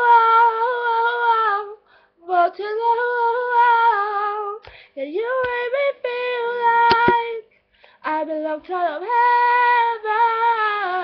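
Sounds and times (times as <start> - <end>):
young woman singing unaccompanied: 0.0 - 11.0.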